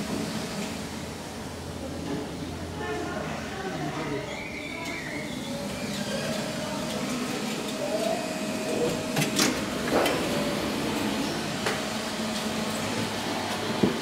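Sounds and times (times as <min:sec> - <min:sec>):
elevator hum and whine: 0:00.0 - 0:14.0
elevator doors sliding open: 0:08.8 - 0:14.0.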